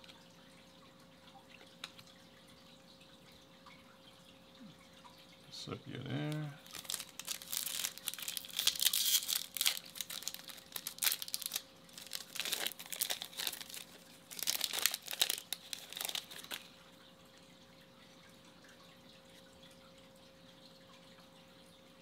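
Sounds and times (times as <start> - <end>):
foil wrapper crinkling and tearing: 6.6 - 16.7.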